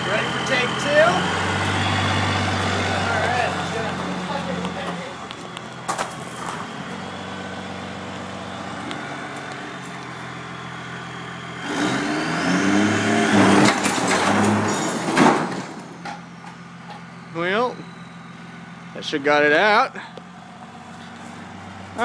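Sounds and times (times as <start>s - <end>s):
diesel engine revving: 0.0s - 22.0s
sharp bang of metal breaking: 13.4s - 16.0s.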